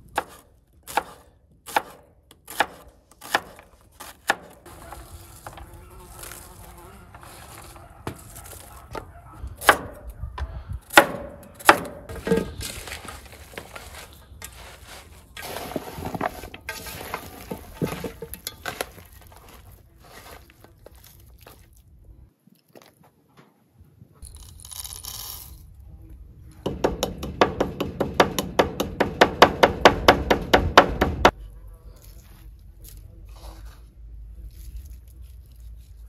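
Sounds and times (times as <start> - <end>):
hands mixing meat squelching: 18.6 - 22.8
wooden pestle pounding in mortar: 26.6 - 31.3.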